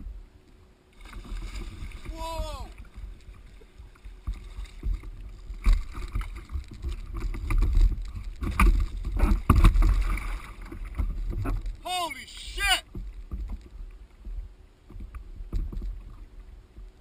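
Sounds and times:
constant low rumble: 0:00.0 - 0:17.0
water splashing against kayak: 0:00.0 - 0:17.0
knocks and thuds on boat: 0:12.8 - 0:17.0.

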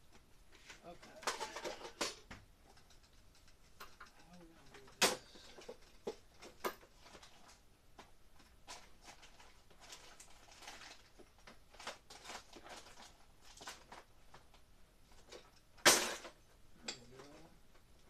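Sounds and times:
rustling: 0:00.0 - 0:18.0.

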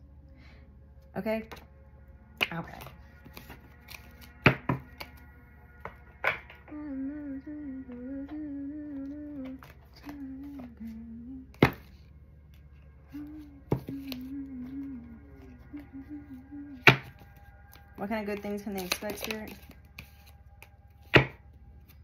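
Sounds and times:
woman humming: 0:06.6 - 0:11.8, 0:13.0 - 0:17.2.

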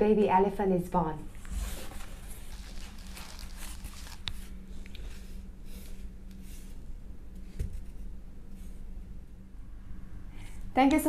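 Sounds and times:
low room hum: 0:00.0 - 0:11.0
cardboard rustling and scraping: 0:01.4 - 0:04.5.

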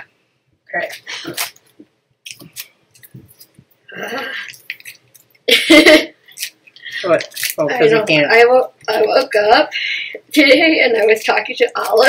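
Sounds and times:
plastic wrapper crinkling: 0:00.8 - 0:03.7, 0:04.4 - 0:05.4, 0:06.3 - 0:07.8.

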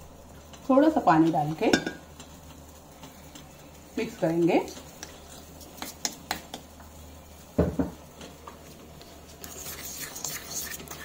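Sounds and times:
spoon clinking on steel bowl: 0:01.7 - 0:02.0
spoon scraping bowl: 0:09.4 - 0:11.0.

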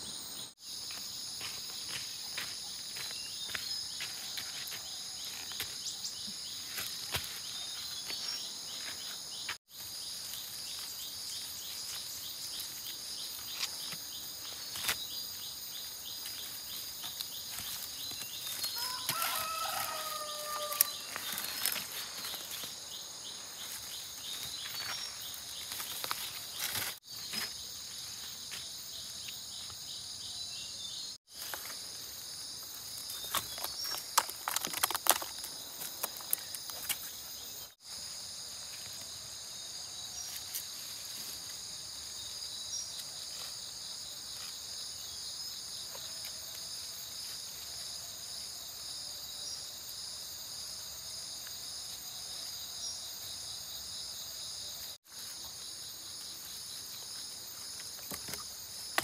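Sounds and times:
insects chirping: 0:00.0 - 0:59.0
distant rooster crowing: 0:18.7 - 0:21.2
clicks and rustles: 0:33.2 - 0:37.2.

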